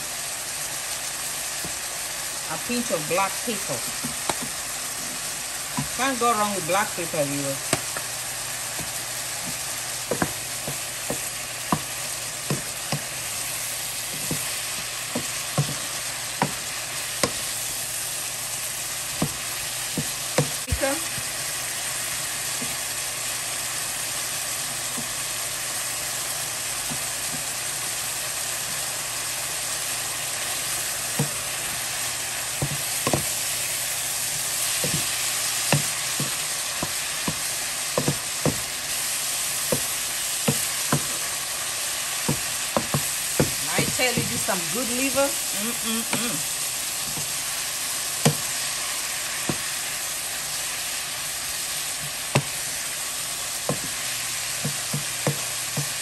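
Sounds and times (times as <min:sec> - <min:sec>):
meat sizzling in a frying pan: 0:00.0 - 0:56.0
wooden spoon knocking on pan: 0:03.8 - 0:04.6, 0:05.7 - 0:06.2, 0:07.6 - 0:08.1, 0:08.7 - 0:13.4, 0:14.0 - 0:17.5, 0:19.1 - 0:21.3, 0:31.1 - 0:31.6, 0:32.6 - 0:33.4, 0:34.2 - 0:38.7, 0:39.6 - 0:41.3, 0:42.2 - 0:45.2, 0:47.0 - 0:47.4, 0:48.2 - 0:48.5, 0:49.4 - 0:49.7, 0:52.0 - 0:52.6, 0:53.6 - 0:54.0, 0:54.6 - 0:56.0.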